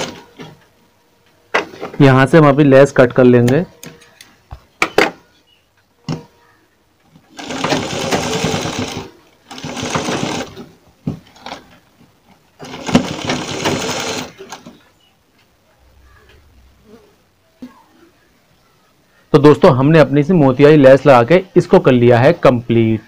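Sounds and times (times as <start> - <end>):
sewing machine stitching: 0.0 - 0.4, 7.3 - 10.7, 12.6 - 14.8.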